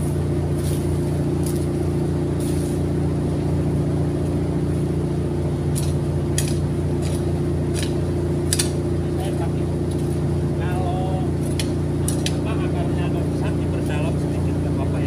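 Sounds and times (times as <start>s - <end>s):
hoe blade scraping soil: 0.0s - 3.1s, 5.6s - 10.2s
low mechanical hum: 0.0s - 15.0s.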